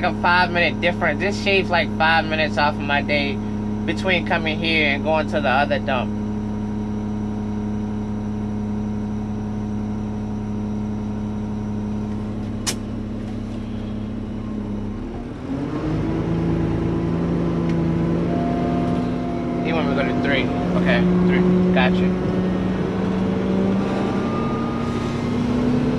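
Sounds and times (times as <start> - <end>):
diesel engine idling and revving: 0.0 - 25.9
short sharp snap: 12.6 - 12.9.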